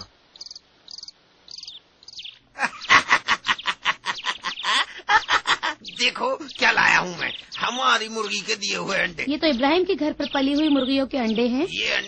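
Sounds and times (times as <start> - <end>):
crickets chirping: 0.0 - 2.2
rapid chatter of sharp calls: 0.9 - 12.0.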